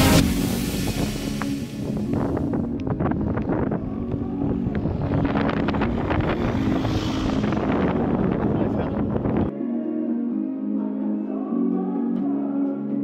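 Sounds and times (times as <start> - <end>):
wind buffeting microphone: 0.0 - 9.5.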